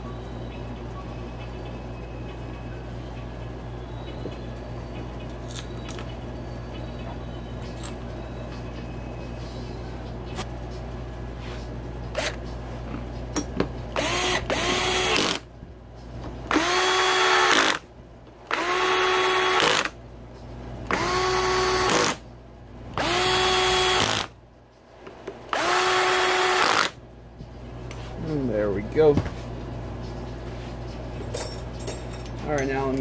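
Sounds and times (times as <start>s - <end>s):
cordless drill whining: 14.0s - 15.4s, 16.5s - 17.8s, 18.5s - 19.9s, 20.9s - 22.2s, 23.0s - 24.3s, 25.5s - 26.9s.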